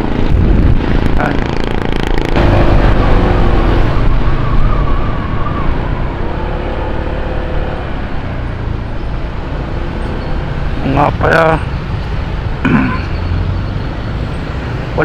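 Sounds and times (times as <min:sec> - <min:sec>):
wind rumble on microphone: 0:00.0 - 0:06.4.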